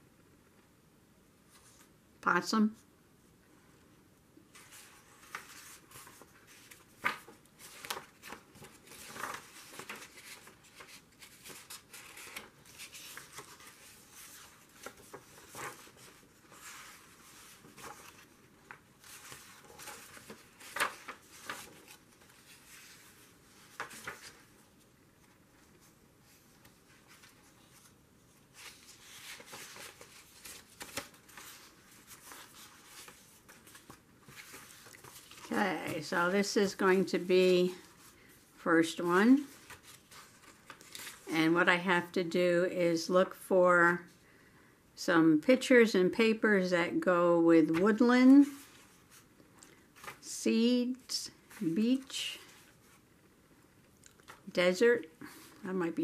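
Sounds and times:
paper pages rustling: 0:04.5 - 0:38.4, 0:39.2 - 0:41.3, 0:47.6 - 0:50.3, 0:51.0 - 0:53.1, 0:54.0 - 0:54.5.

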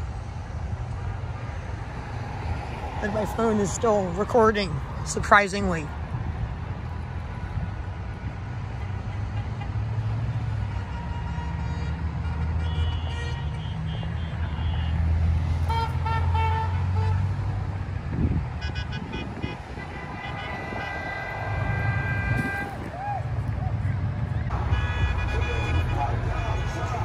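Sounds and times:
vehicles driving past: 0:00.0 - 0:27.0
car horns honking: 0:10.4 - 0:17.6, 0:18.3 - 0:22.9, 0:24.5 - 0:27.0.

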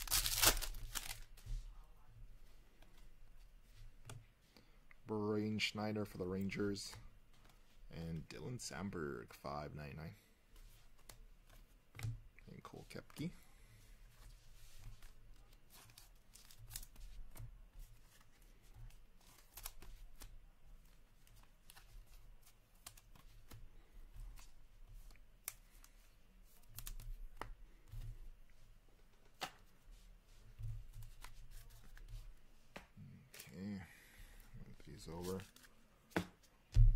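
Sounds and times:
plastic sleeve rustling: 0:00.0 - 0:01.7
cards clicking and tapping: 0:21.3 - 0:28.2.

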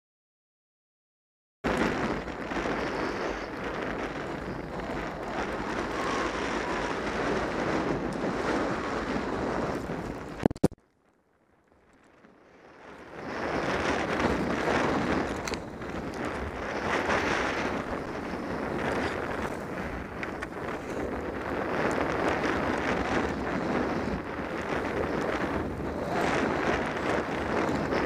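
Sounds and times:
wind rushing over microphone: 0:01.6 - 0:10.8, 0:12.0 - 0:28.0
sharp clicks: 0:10.4 - 0:10.8.

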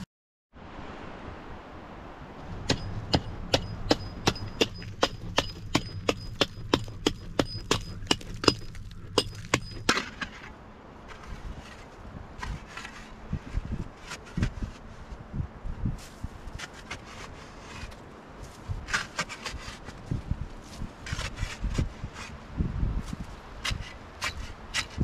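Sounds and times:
hatchet chopping frozen ground: 0:02.6 - 0:10.5, 0:18.7 - 0:20.0, 0:23.0 - 0:25.0.

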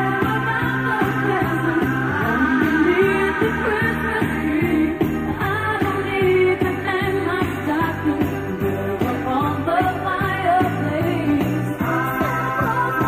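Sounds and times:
upbeat pop song with singing: 0:00.0 - 0:13.0.

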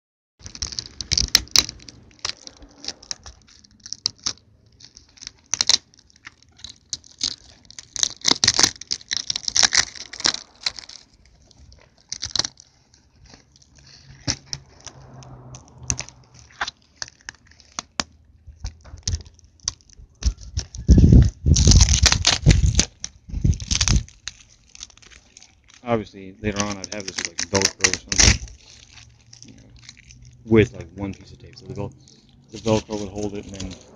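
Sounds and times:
plastic tape peeling and crinkling: 0:00.4 - 0:33.9.

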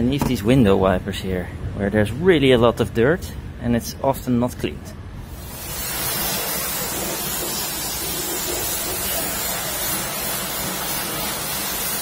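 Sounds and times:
pressure washer water jet hissing: 0:05.3 - 0:12.0.

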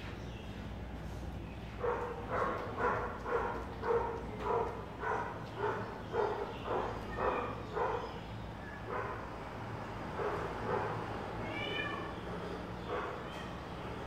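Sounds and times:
cats meowing: 0:10.7 - 0:14.0.

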